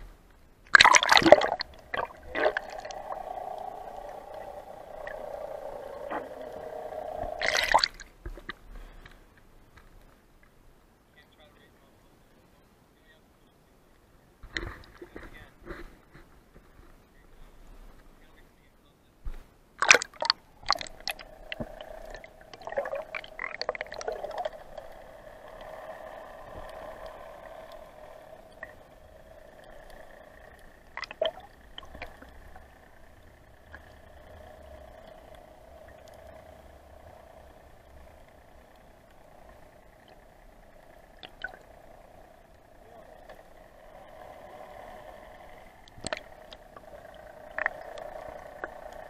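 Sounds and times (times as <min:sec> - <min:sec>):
muffled underwater hum: 0:00.0 - 0:09.2, 0:19.8 - 0:49.0
bubbly gurgling: 0:00.7 - 0:08.2, 0:19.8 - 0:49.0
water sloshing and splashing: 0:00.7 - 0:09.0, 0:19.8 - 0:36.5, 0:37.1 - 0:44.1, 0:45.8 - 0:49.0.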